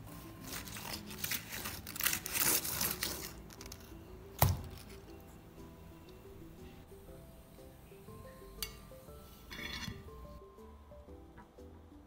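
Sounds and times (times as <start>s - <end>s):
bread tearing and crackling: 0.4s - 5.1s.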